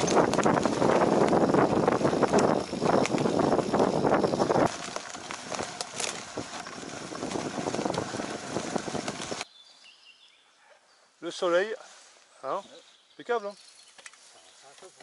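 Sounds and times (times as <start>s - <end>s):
bike clicking and rattling: 0.0s - 9.4s
wind buffeting microphone: 0.0s - 9.4s.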